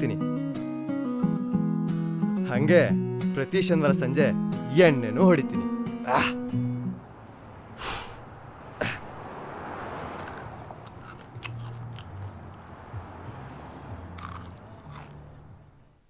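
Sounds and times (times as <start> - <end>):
crickets chirping: 5.4 - 16.0.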